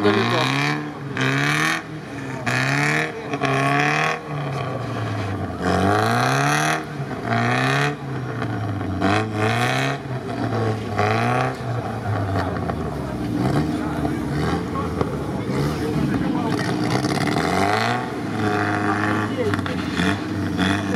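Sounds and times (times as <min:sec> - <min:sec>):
off-road truck engine revving: 0:00.0 - 0:20.9.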